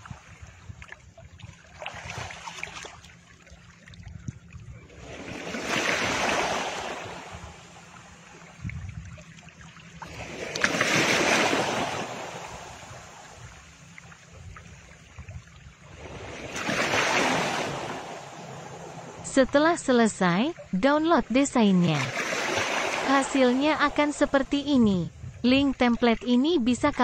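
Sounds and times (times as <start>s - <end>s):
steady low rumble: 0.0s - 10.6s, 11.6s - 16.6s, 23.1s - 27.0s
ocean waves washing in: 1.4s - 25.3s.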